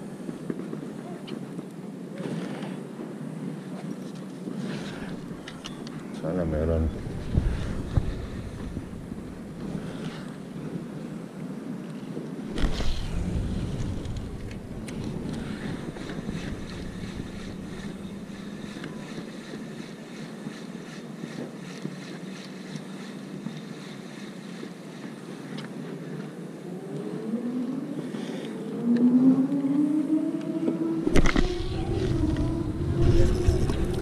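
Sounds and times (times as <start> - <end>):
low outdoor hum: 0.0 - 34.0
wind on microphone: 4.4 - 22.4, 26.8 - 34.0
engine passing: 12.5 - 18.7, 26.7 - 34.0.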